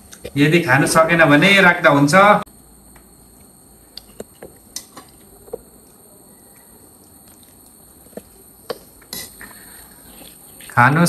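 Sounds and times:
chewing and slurping: 7.0 - 10.8.

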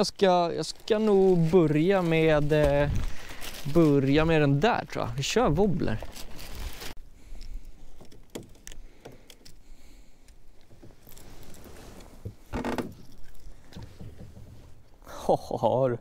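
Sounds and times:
plastic packaging rustling: 0.1 - 7.0.

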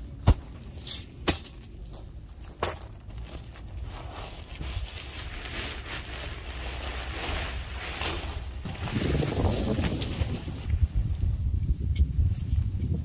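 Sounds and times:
wind on microphone: 8.6 - 13.0.

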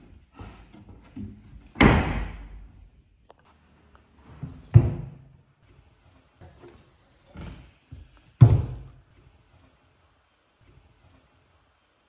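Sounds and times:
wooden cabinet door banging shut: 1.8 - 2.5.

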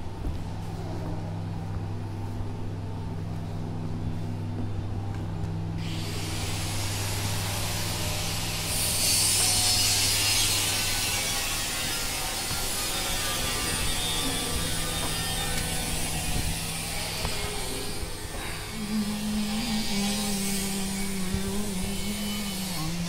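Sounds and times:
steady low hum: 0.0 - 23.0
rough hissing work sound: 5.8 - 23.0.

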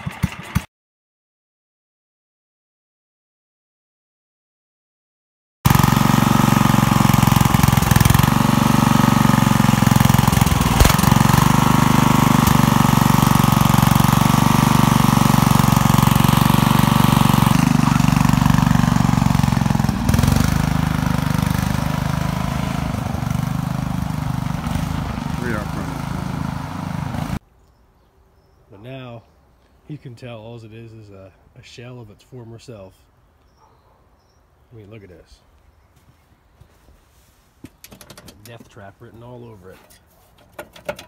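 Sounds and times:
lawn tractor engine running: 0.0 - 0.7, 5.7 - 27.4, 37.8 - 39.7.

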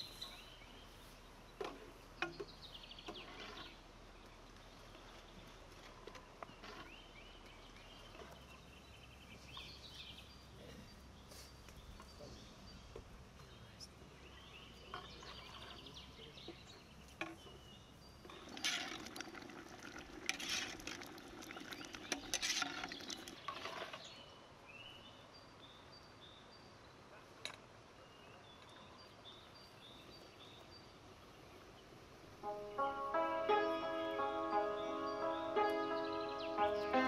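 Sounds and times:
metal ladle scraping a pot: 20.2 - 24.0.

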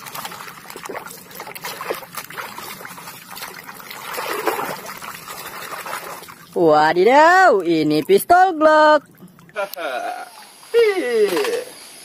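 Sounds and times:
water splashing in a plastic tub: 0.0 - 11.9.

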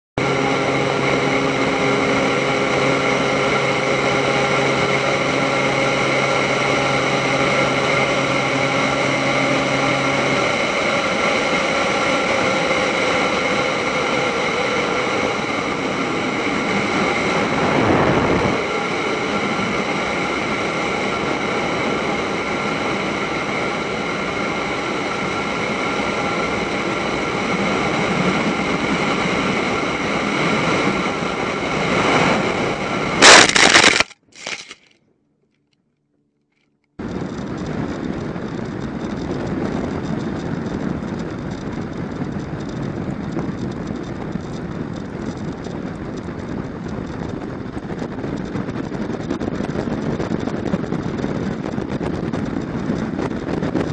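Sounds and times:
wind and airframe noise: 0.2 - 34.8, 37.0 - 53.9
propeller plane engine running: 0.2 - 34.9, 36.8 - 53.9
rushing noise surge: 33.2 - 34.8.

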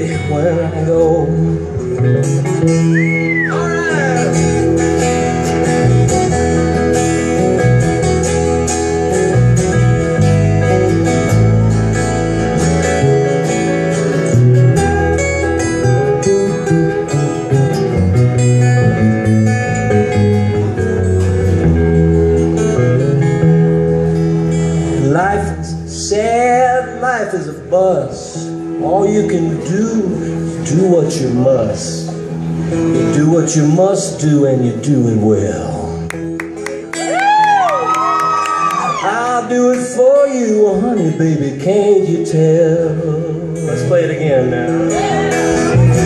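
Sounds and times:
steady bass line: 0.0 - 27.1, 42.6 - 46.0
live band playing guitars: 0.0 - 46.0.

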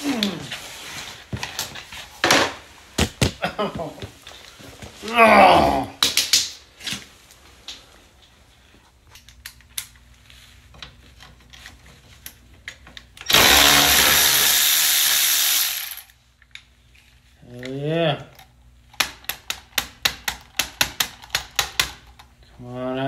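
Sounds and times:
cordless ratchet spinning bolt: 13.3 - 16.1.

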